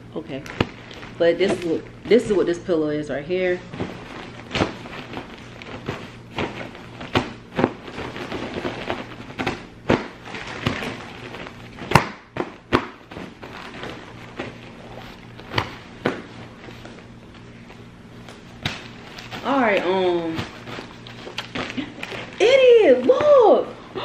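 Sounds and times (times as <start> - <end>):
low steady hum: 0.0 - 24.0
light fabric rustling: 3.5 - 12.0.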